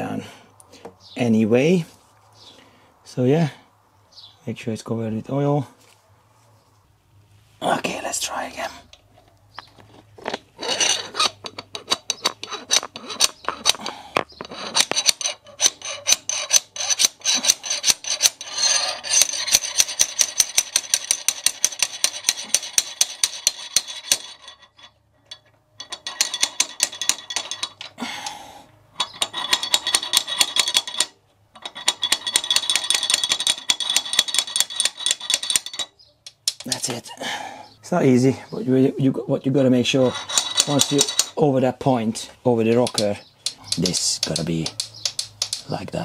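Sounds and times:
slide hammer metallic clacks: 0:29.0 - 0:37.0, 0:40.0 - 0:41.4, 0:42.7 - 0:46.0.

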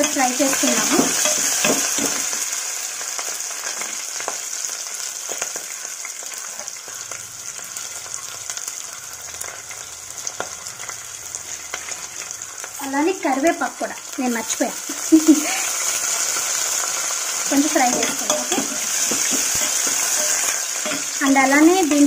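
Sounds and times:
vegetables sizzling in hot oil: 0:00.0 - 0:22.0.

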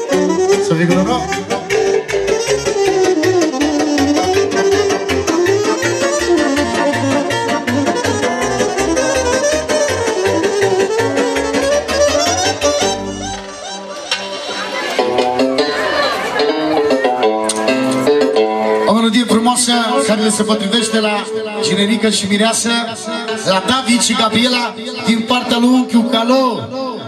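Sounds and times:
bass and drum beat: 0:00.0 - 0:13.6
saxophone melody: 0:00.0 - 0:18.6
keyboard accompaniment: 0:00.0 - 0:27.0.

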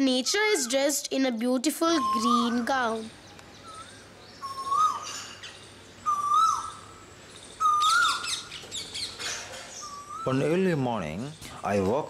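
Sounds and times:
koel whistled call: 0:02.0 - 0:02.7, 0:03.6 - 0:05.1, 0:09.8 - 0:10.5
high bird chirps: 0:02.0 - 0:11.7.

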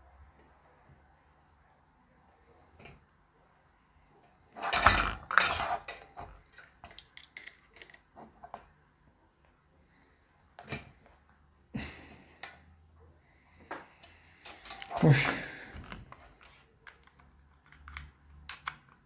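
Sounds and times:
metal tools clattering: 0:04.6 - 0:06.2, 0:14.4 - 0:15.4.

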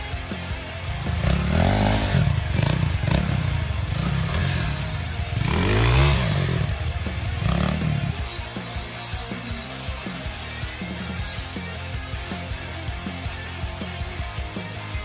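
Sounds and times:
motorcycle engine revving: 0:00.0 - 0:09.4.

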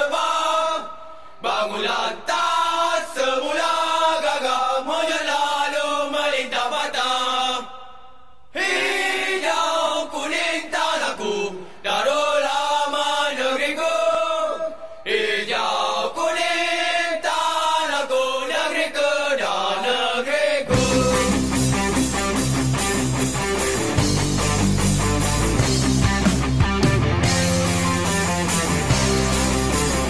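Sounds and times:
voices singing chant-like melody: 0:00.0 - 0:22.4
rock band with guitar: 0:20.7 - 0:30.0.

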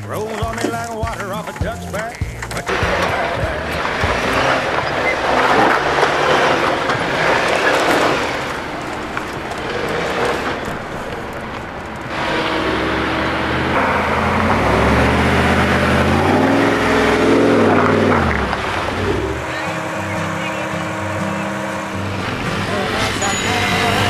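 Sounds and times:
engine revving: 0:00.0 - 0:24.0
off-road vehicle engines: 0:00.0 - 0:24.0.

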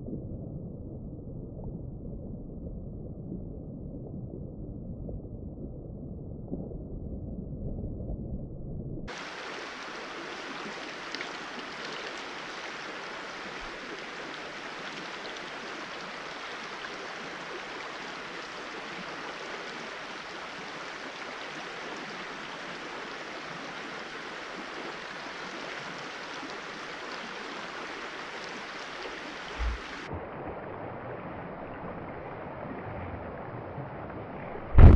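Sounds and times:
stream rushing over rocks: 0:09.1 - 0:30.1
soft low thumps: 0:29.6 - 0:30.1, 0:34.7 - 0:34.9.

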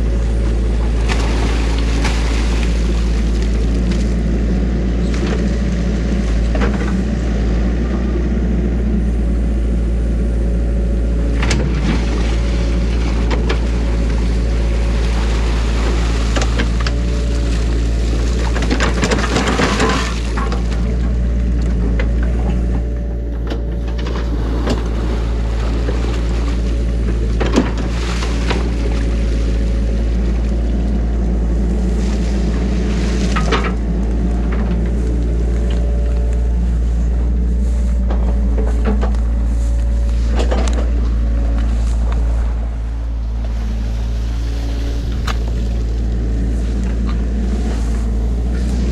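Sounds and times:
diesel engine running: 0:00.0 - 0:48.9
bucket scraping: 0:37.2 - 0:48.9.

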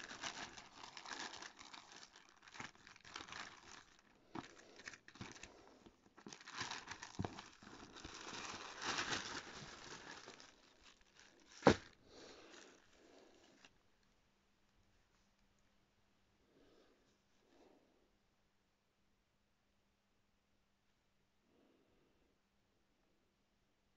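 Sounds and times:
plastic bag crinkling: 0:00.0 - 0:13.8.

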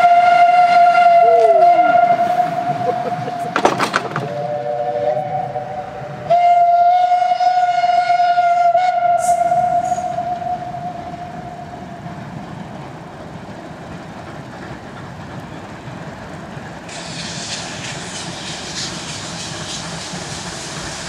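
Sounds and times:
steam locomotive whistle: 0:00.0 - 0:03.6, 0:04.2 - 0:12.0, 0:16.9 - 0:20.1
short clatter: 0:03.5 - 0:04.4.

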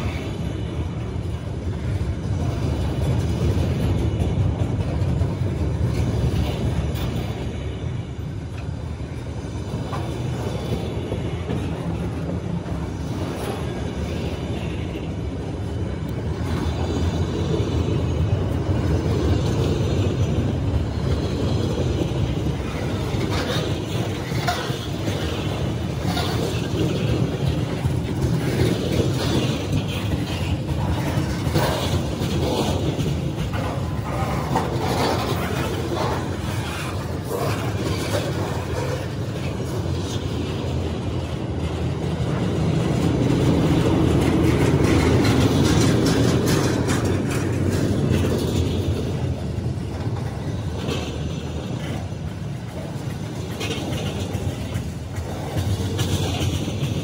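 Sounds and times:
freight train wheels rumbling: 0:00.0 - 0:57.0
wheels clacking over rail joints: 0:00.0 - 0:57.0.

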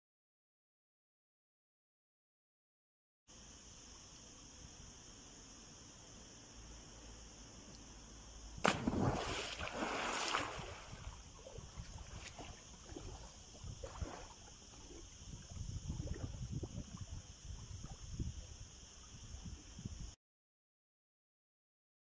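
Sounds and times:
loud splash into pool: 0:08.6 - 0:11.2
swimming strokes splashing: 0:08.6 - 0:14.5.

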